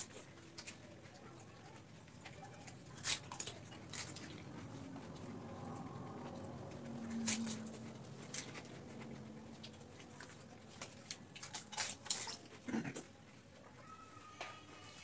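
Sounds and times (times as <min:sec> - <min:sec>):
crisp shells crunching in mouth: 0:09.7 - 0:13.0.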